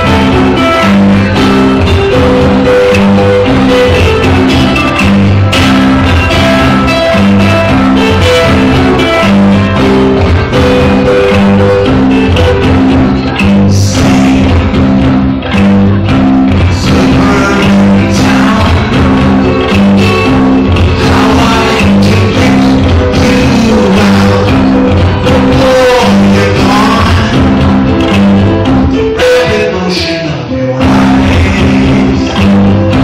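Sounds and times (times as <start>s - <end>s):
low bass figure: 0.0s - 29.6s, 30.8s - 33.0s
live rock band playing: 0.0s - 33.0s
person singing: 0.0s - 33.0s.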